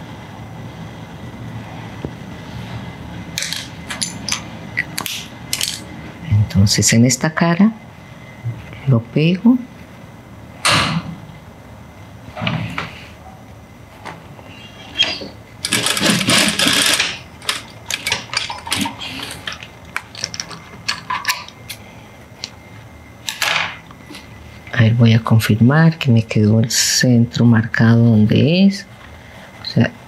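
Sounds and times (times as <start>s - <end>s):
sewing machine running: 15.6s - 19.5s.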